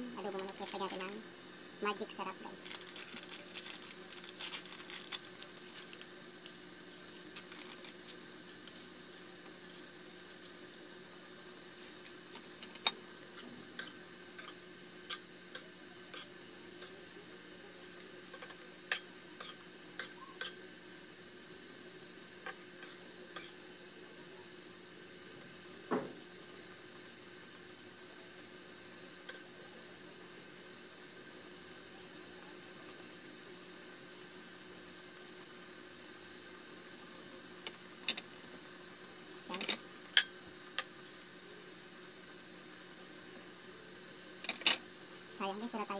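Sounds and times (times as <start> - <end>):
steady low hum: 0.0 - 45.9
rapid crackle: 0.2 - 17.2
spatula scraping and clinking wok: 13.8 - 15.2.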